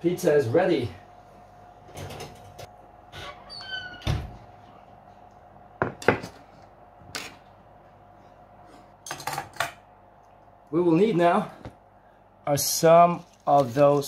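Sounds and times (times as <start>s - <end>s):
oven door squeak: 3.1s - 4.4s.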